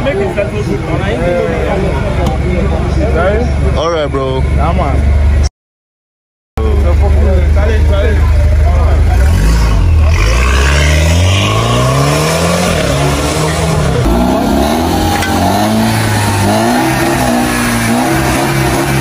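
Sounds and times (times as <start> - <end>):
car engine revving: 6.8 - 19.0.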